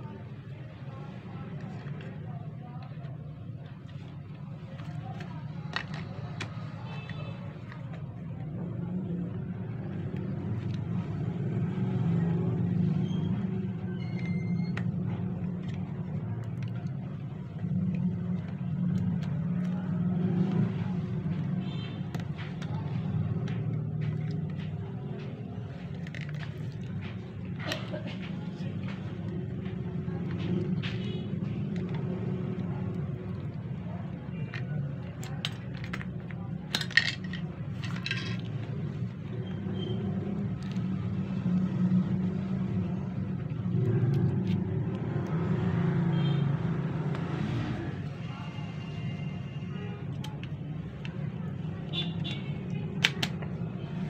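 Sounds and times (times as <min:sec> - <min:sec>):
plastic parts clicking: 0:01.5 - 0:08.5, 0:13.3 - 0:41.6, 0:50.1 - 0:53.7.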